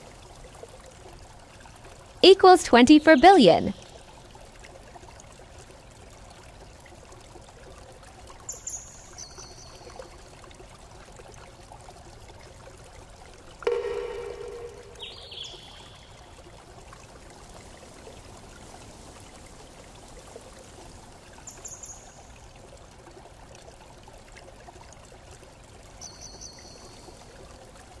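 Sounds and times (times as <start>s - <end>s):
faint steady hiss: 13.6s - 24.8s
high-pitched chirps: 13.7s - 15.8s.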